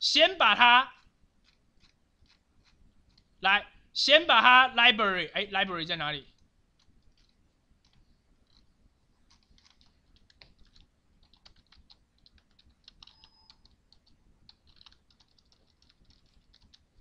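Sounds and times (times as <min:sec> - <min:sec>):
faint keyboard typing: 0:00.9 - 0:03.4, 0:06.2 - 0:17.0.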